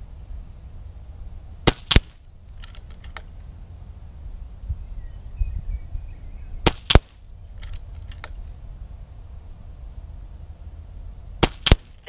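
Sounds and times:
air rifle shots cracking: 1.6s - 3.3s, 6.6s - 8.4s, 11.4s - 12.0s.

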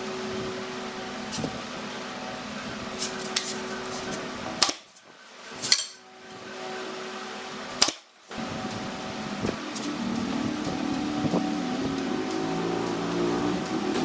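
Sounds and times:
steady hum: 0.0s - 14.0s
nail gun shots: 4.6s - 4.9s, 7.8s - 8.1s.

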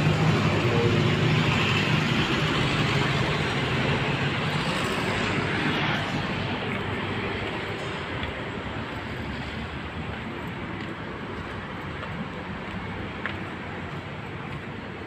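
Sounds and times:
distant road traffic: 0.0s - 15.0s.

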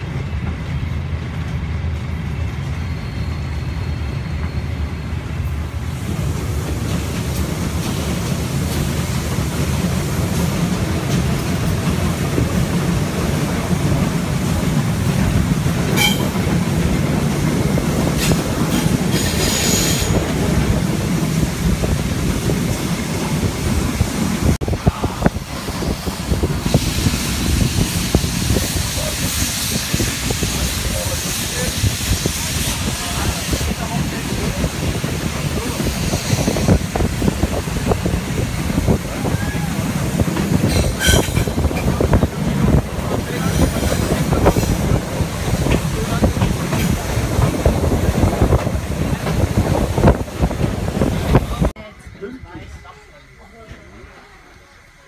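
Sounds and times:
train wheels clicking on rails: 0.0s - 24.6s, 25.3s - 51.7s
high squeal: 2.6s - 5.4s, 19.1s - 20.2s
wind on microphone: 20.0s - 51.7s.

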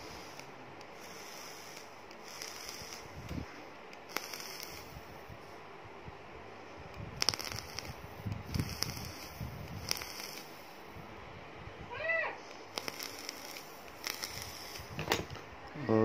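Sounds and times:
vape coil sizzling and crackling: 0.0s - 5.3s, 7.1s - 11.0s, 12.5s - 15.0s.

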